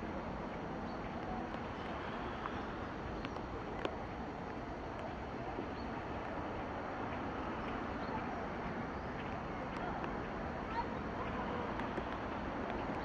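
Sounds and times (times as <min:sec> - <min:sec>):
faint clicks: 0:00.5 - 0:05.2.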